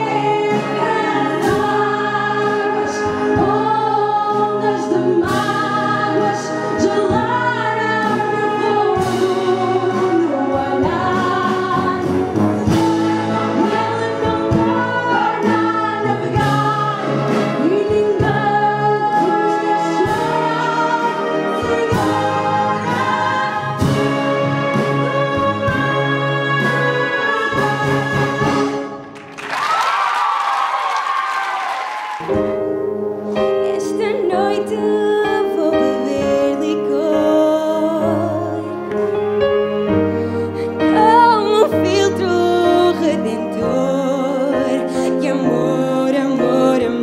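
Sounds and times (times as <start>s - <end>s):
wind band playing: 0.0s - 29.1s
person singing into a microphone: 40.9s - 47.0s.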